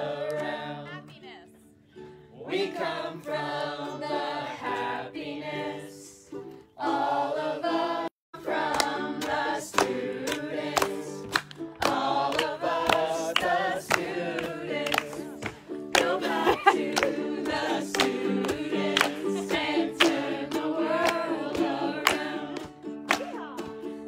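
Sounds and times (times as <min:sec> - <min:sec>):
group singing: 0:00.0 - 0:01.2, 0:02.2 - 0:24.0.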